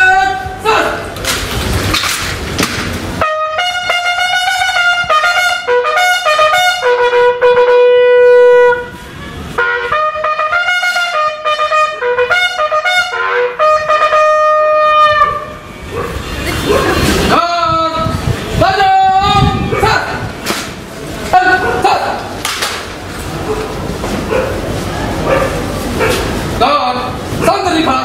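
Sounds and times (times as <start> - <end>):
bugle call: 3.2 - 15.6.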